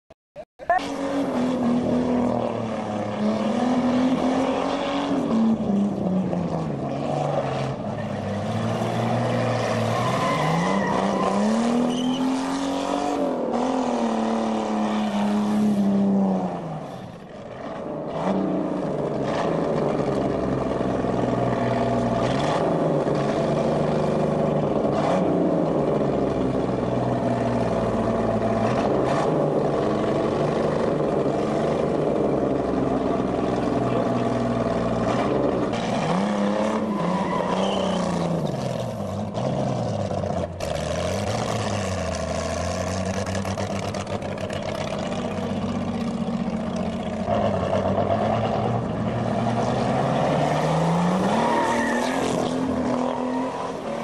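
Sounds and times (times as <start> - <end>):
car engine revving hard: 18.1 - 54.0.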